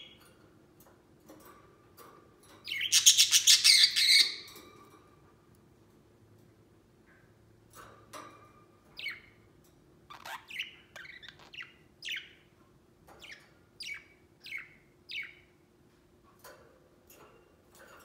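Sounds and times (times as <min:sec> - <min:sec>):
budgerigar chirping: 0:02.7 - 0:04.5.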